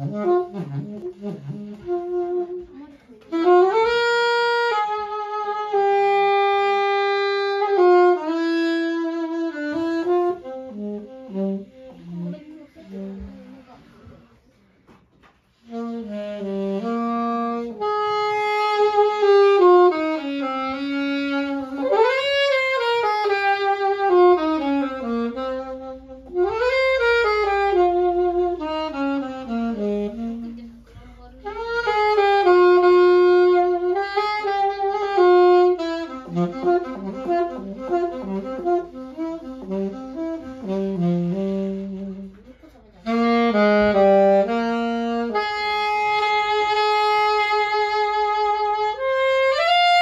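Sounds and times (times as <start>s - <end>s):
solo saxophone melody: 0.0s - 13.9s, 15.5s - 50.0s.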